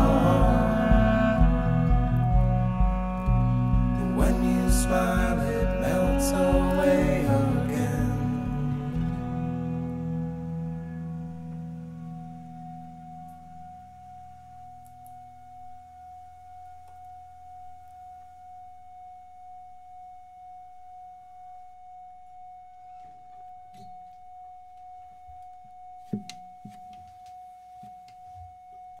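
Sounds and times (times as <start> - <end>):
lower musical notes: 0.0 - 17.0
sustained musical tone: 0.0 - 17.8.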